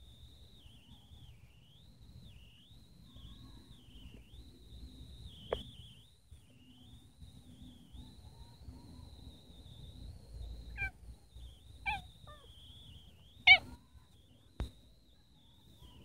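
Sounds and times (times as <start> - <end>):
faint steady high tone: 0.0 - 16.0
cat meowing: 10.8 - 11.0, 11.9 - 12.5, 13.5 - 13.8.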